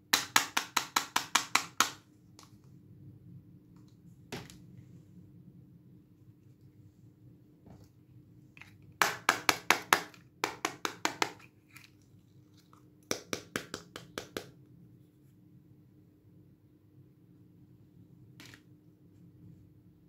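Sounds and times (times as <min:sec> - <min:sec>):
taps on hard plastic toy: 0:00.2 - 0:02.0.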